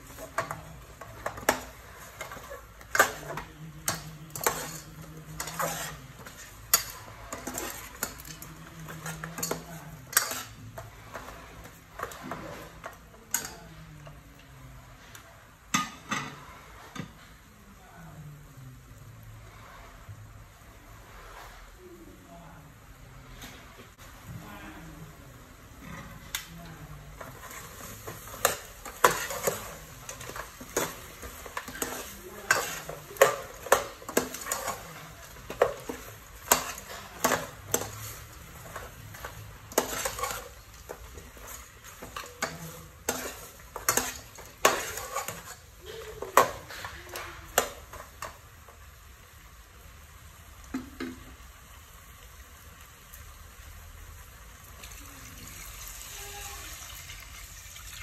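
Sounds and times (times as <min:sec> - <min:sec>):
utensil scraping metal pot: 0:00.0 - 0:13.6, 0:25.7 - 0:48.4.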